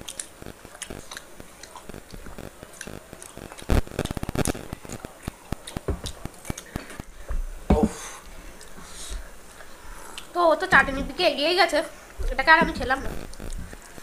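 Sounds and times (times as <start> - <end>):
chewing: 0.0 - 7.1, 8.4 - 10.3.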